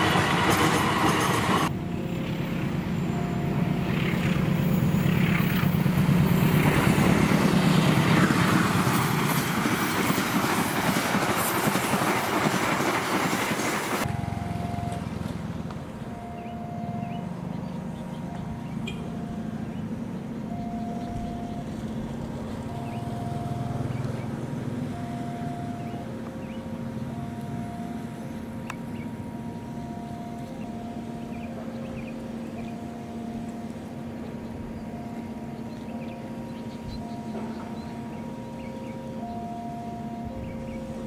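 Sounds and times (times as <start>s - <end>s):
level-crossing alarm two-tone: 1.6s - 5.7s, 14.0s - 15.1s, 16.1s - 19.8s, 20.4s - 22.0s, 22.6s - 41.0s.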